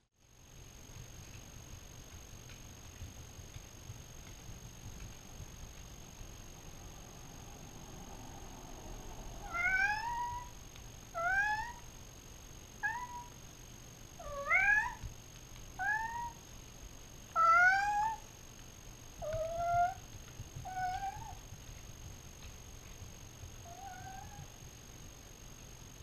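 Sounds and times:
cat meowing: 0:09.4 - 0:11.9, 0:12.8 - 0:13.4, 0:14.2 - 0:15.0, 0:15.8 - 0:16.4, 0:17.4 - 0:18.2, 0:19.2 - 0:20.0, 0:20.7 - 0:21.4, 0:23.7 - 0:24.5.

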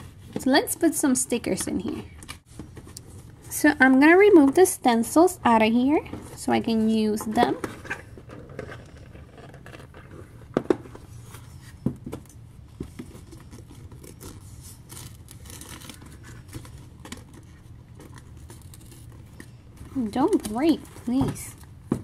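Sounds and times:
plastic and paper rustling: 0:06.0 - 0:22.0.

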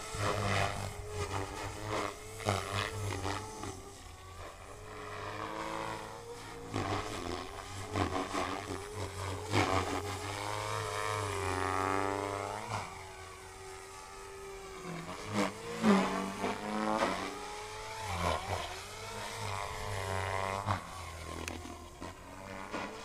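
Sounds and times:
rc helicopter motor and rotor whine: 0:00.0 - 0:23.0.

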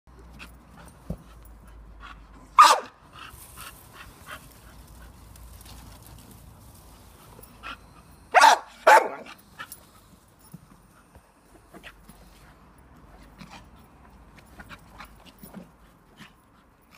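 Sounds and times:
dog barking: 0:02.6 - 0:03.0, 0:08.3 - 0:09.3.

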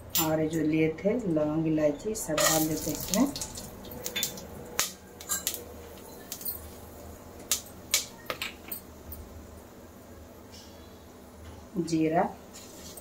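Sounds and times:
spices crackling in hot oil: 0:02.2 - 0:08.7.

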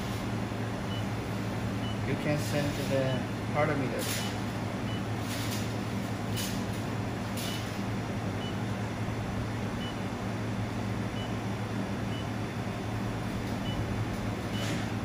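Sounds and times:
laser welder hum and fan: 0:00.0 - 0:15.0.

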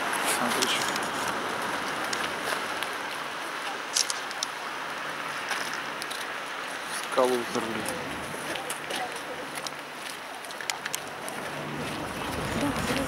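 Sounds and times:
distant road traffic: 0:00.0 - 0:13.0
faint clicks: 0:07.8 - 0:11.4.

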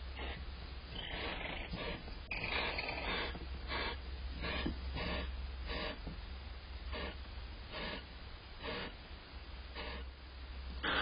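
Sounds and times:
steady low hum: 0:00.0 - 0:11.0
owl hissing calls: 0:00.2 - 0:06.0, 0:06.9 - 0:09.0, 0:09.8 - 0:10.1, 0:10.8 - 0:11.0.

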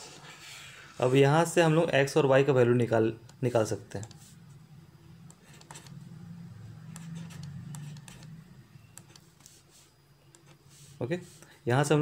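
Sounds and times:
low hum: 0:04.3 - 0:09.2
stylus tapping tablet screen: 0:05.2 - 0:06.0, 0:06.8 - 0:09.6.

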